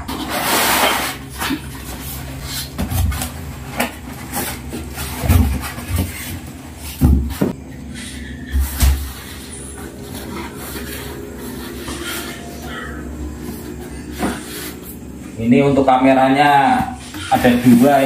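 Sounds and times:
foam packing rubbing: 0:00.0 - 0:07.6, 0:08.5 - 0:15.0.

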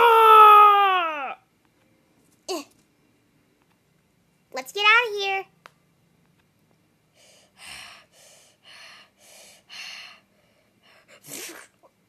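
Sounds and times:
child gasping breath: 0:07.2 - 0:11.4
child panting: 0:07.2 - 0:11.4.

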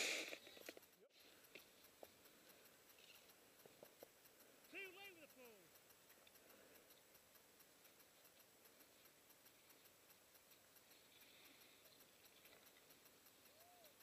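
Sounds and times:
faint steady hiss: 0:00.0 - 0:14.0
fast even ticking: 0:00.0 - 0:14.0.

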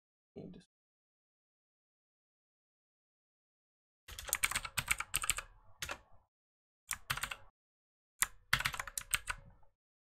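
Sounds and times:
computer keyboard typing: 0:04.1 - 0:06.1, 0:06.9 - 0:07.5, 0:08.2 - 0:09.5.

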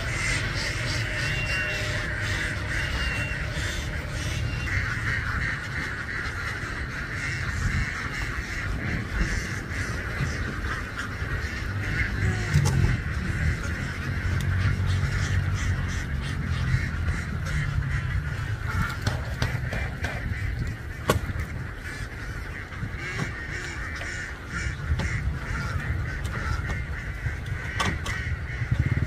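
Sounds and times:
ducks quacking: 0:00.0 - 0:29.0
low rumble: 0:00.0 - 0:29.0.

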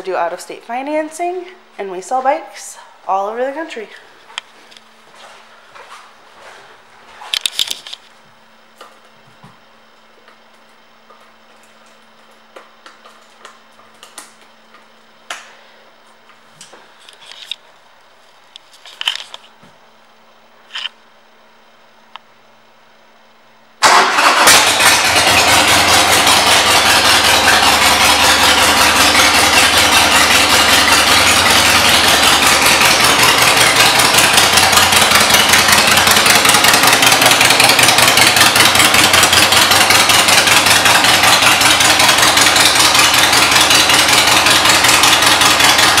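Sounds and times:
motorcycle engine starting and idling: 0:23.8 - 0:46.0.

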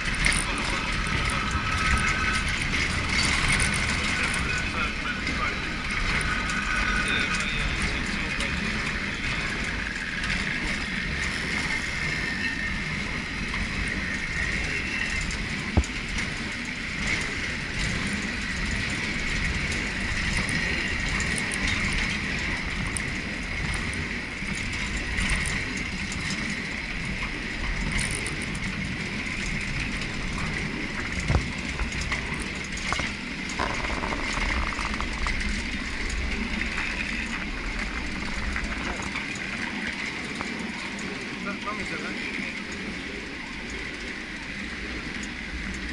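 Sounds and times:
wheels rumbling on rails: 0:00.0 - 0:45.9
high-pitched hum: 0:32.1 - 0:40.4
sharp clicks: 0:32.8 - 0:35.6.

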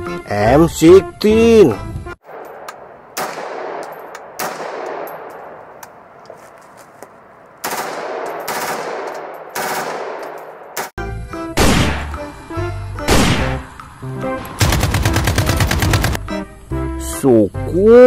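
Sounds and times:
rifle shots with echo: 0:02.2 - 0:05.8, 0:07.6 - 0:10.9, 0:11.6 - 0:12.1, 0:13.1 - 0:13.6, 0:14.6 - 0:16.2.

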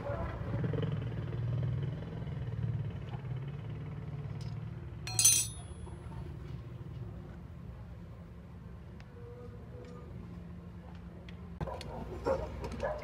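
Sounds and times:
metal tool clinking on metal: 0:05.1 - 0:05.9.

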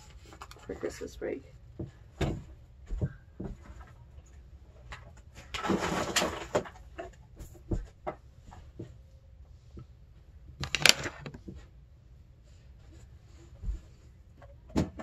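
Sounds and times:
plastic supplies clicking and tapping: 0:10.6 - 0:11.5.

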